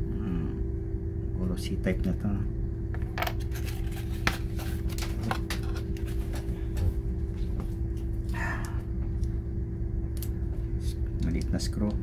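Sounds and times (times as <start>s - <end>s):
steady low hum: 0.0s - 12.0s
card rustling: 3.4s - 6.6s.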